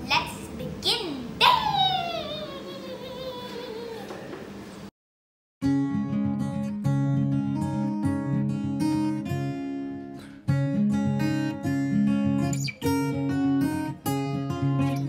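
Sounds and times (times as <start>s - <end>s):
acoustic guitar strumming chords: 5.6s - 15.0s.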